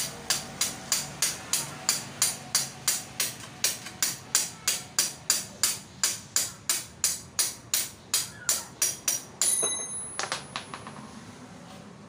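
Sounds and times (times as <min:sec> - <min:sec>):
hammer striking metal: 0:00.0 - 0:10.8.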